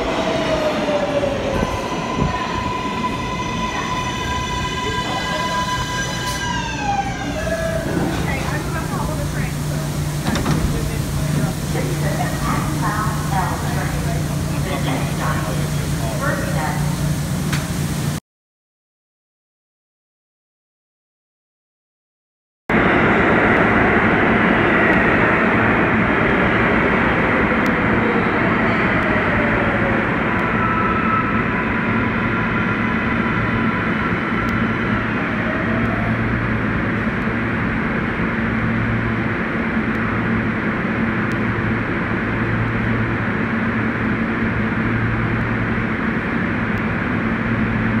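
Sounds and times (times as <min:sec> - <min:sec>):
train wheels rumbling on rail: 0:00.0 - 0:18.1.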